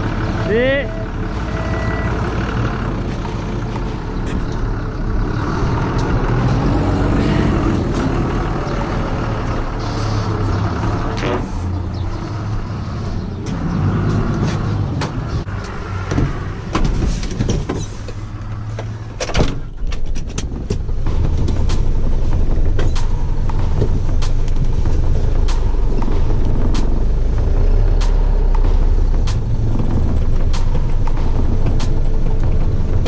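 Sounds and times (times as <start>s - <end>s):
vehicle engine idling: 0.0s - 33.0s
sharp knocks and clicks: 28.0s - 33.0s.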